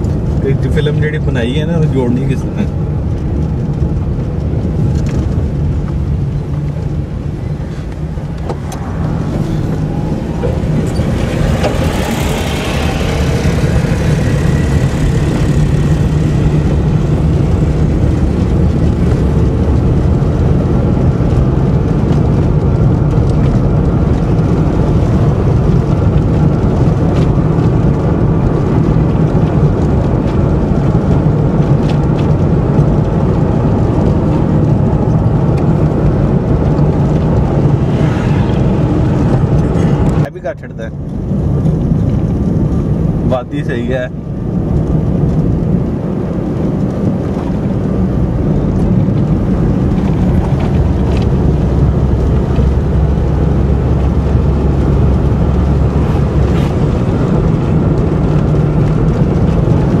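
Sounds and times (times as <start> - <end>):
car engine and road rumble: 0.0 - 60.0
rushing swell: 6.9 - 18.0, 37.0 - 40.3, 49.7 - 58.8.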